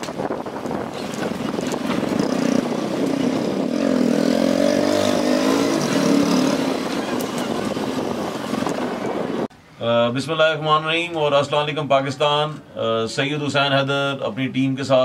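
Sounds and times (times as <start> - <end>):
road and air noise: 0.0 - 15.0
motorcycle engine running: 0.2 - 9.5.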